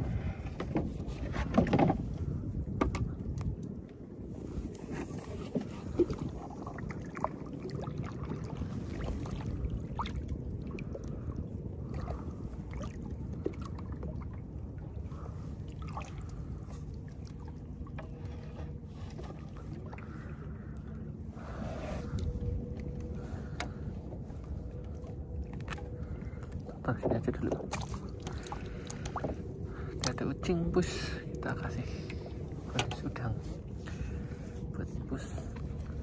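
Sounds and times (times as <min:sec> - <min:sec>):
low rumble: 0:00.0 - 0:36.0
water lapping at hull: 0:00.0 - 0:36.0
light knocks on boat: 0:02.8 - 0:03.1
paddle stroking through water: 0:04.6 - 0:14.4.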